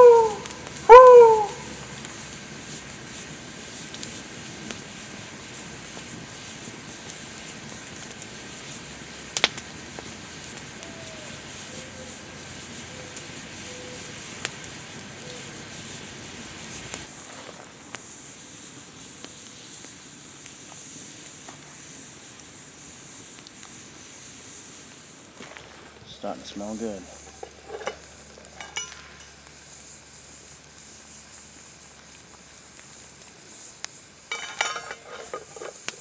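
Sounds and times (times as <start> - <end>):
campfire crackling: 0.0 - 36.0
loud sharp fire pops: 1.6 - 11.7, 14.2 - 26.0, 26.7 - 34.6.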